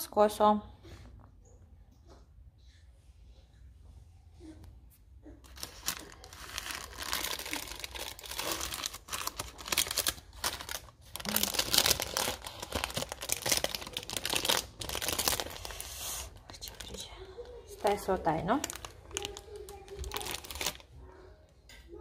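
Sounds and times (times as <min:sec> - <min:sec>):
baking paper crinkling: 0:05.4 - 0:21.0.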